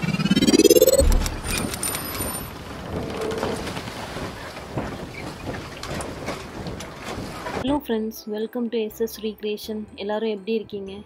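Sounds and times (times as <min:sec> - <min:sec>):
rising whoosh: 0:00.0 - 0:02.0
low boom: 0:00.2 - 0:01.8.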